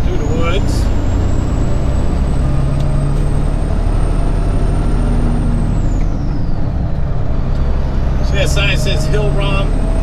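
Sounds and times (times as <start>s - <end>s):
truck diesel engine rumble: 0.0s - 10.0s.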